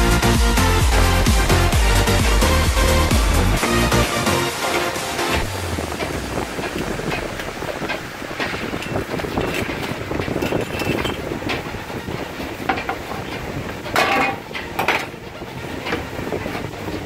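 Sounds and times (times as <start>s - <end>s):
steady rushing noise: 0.0s - 17.0s
metal pizza pan clinking: 13.9s - 15.2s.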